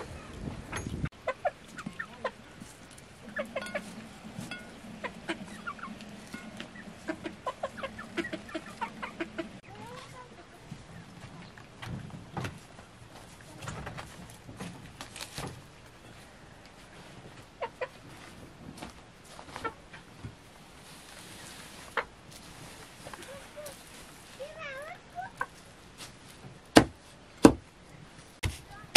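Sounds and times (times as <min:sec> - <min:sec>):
hens clucking: 0:00.0 - 0:12.0, 0:15.8 - 0:18.4, 0:19.4 - 0:20.2, 0:21.4 - 0:22.3, 0:23.0 - 0:25.8.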